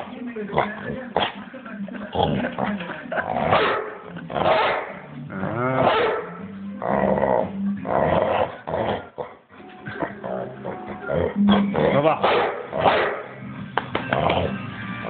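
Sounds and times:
dog growling: 0.0s - 13.3s, 14.1s - 14.7s.

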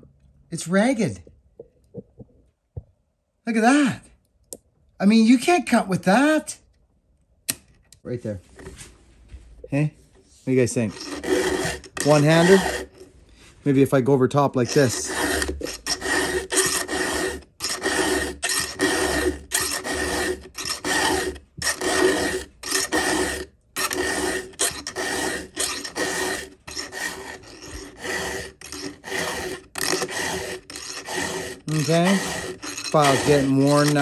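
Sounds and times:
file rasping on saw chain: 10.6s - 13.1s, 14.5s - 34.0s.

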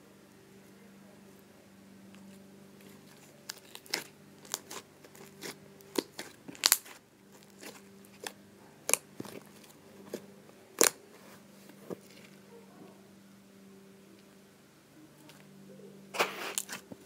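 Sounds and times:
faint low hum: 0.0s - 17.0s
slime squeezed with sticky pops: 3.5s - 9.4s, 16.2s - 16.9s.

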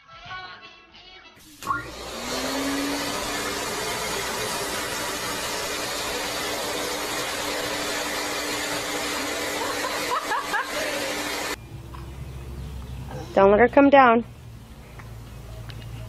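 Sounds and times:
small electric motor whooshing: 1.6s - 8.7s.

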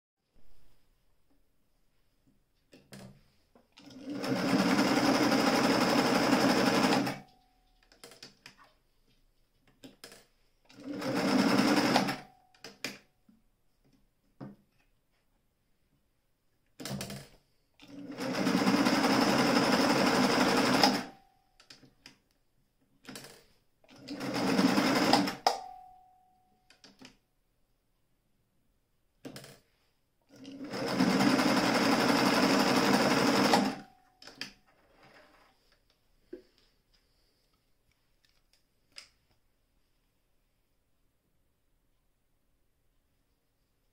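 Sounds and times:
sewing machine stitching: 3.8s - 7.3s, 10.0s - 12.3s, 16.8s - 21.8s, 23.0s - 25.5s, 30.3s - 35.5s.

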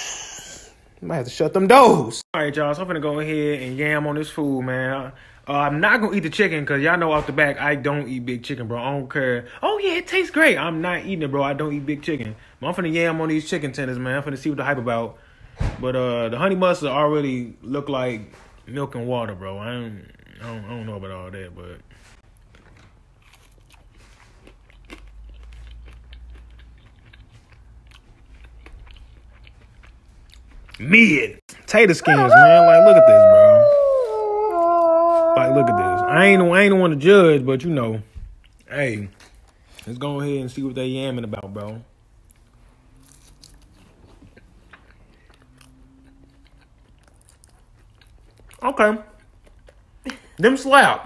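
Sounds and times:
man chewing crunchy food: 22.2s - 30.9s, 42.1s - 50.0s.

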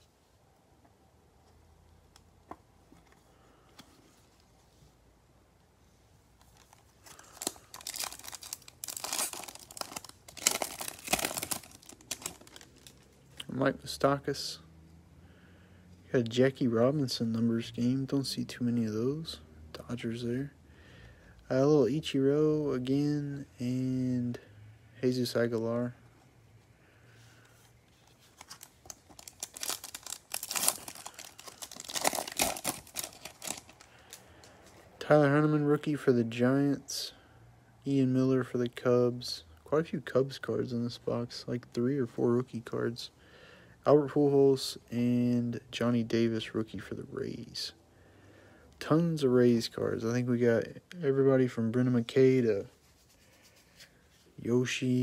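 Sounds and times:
foil wrapper tearing and crinkling: 7.1s - 12.9s, 28.4s - 34.2s.

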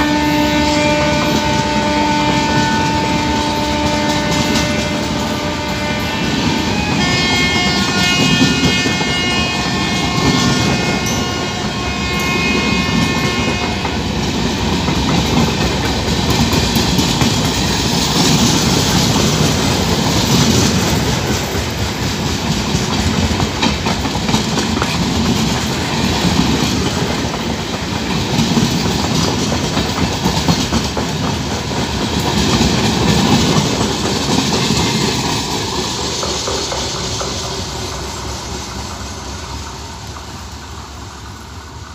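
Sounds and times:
locomotive horn: 0.0s - 14.2s
train rumbling past: 0.0s - 41.9s
wheels clacking over rail joints: 0.8s - 41.9s.

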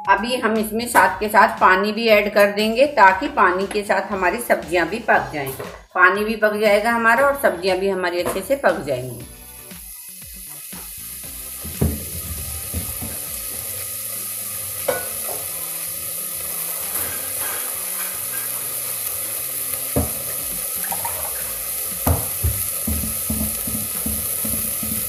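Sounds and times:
vegetables sizzling in oil: 7.9s - 25.0s.

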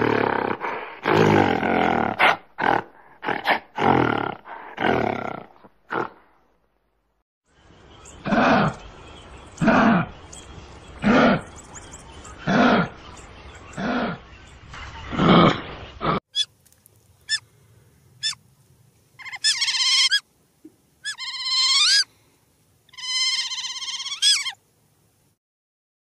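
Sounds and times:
loud harsh animal calls: 8.2s - 8.8s, 9.6s - 10.2s, 11.0s - 11.5s, 19.2s - 20.2s, 21.0s - 22.1s, 22.9s - 24.6s
repeating animal calls: 10.9s - 16.5s, 18.2s - 18.4s, 19.2s - 20.2s, 21.0s - 22.1s, 22.9s - 24.6s.

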